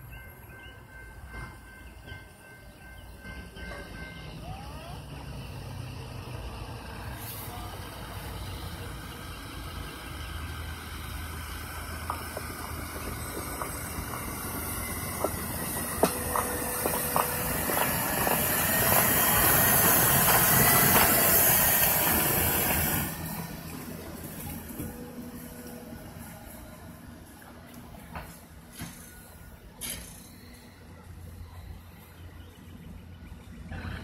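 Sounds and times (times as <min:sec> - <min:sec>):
truck rolling along rails: 0:05.0 - 0:31.1.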